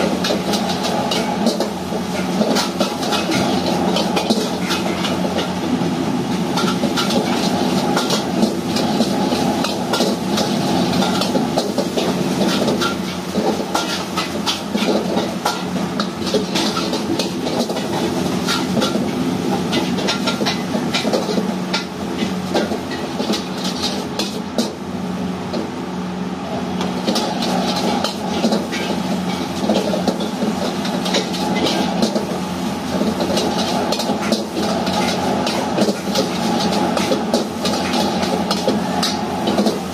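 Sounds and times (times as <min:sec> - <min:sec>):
gas burner and fan humming: 0:00.0 - 0:39.9
metal ladle scraping a wok: 0:06.4 - 0:24.1, 0:27.0 - 0:39.9.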